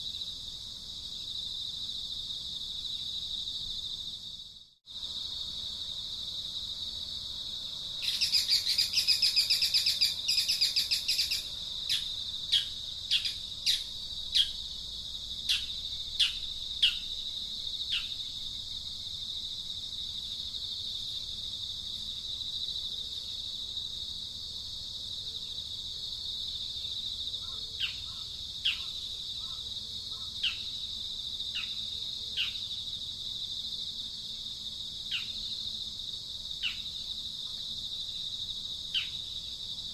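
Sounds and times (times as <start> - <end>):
high-pitched insect drone: 7.9 - 18.8.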